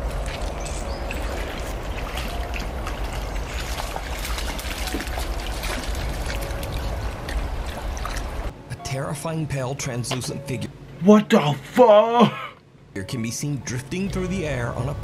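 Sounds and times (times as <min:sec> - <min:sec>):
water trickling and splashing: 0:00.0 - 0:08.5
steady low rumble: 0:00.0 - 0:11.1, 0:12.7 - 0:15.0.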